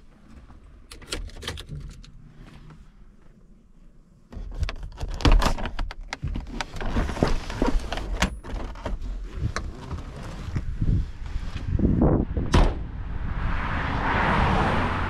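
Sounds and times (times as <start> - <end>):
clicks knocks and thunks: 12.5 - 12.9.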